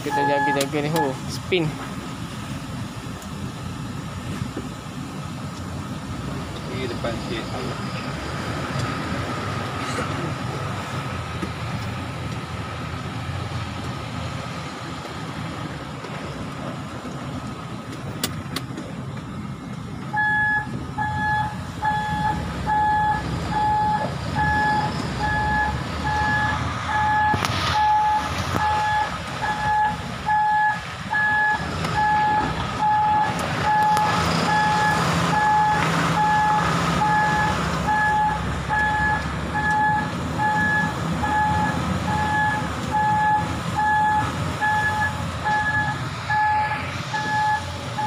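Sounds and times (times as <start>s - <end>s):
reversing alarm beeping: 0.0s - 1.2s, 20.1s - 48.0s
diesel truck engine running: 0.0s - 48.0s.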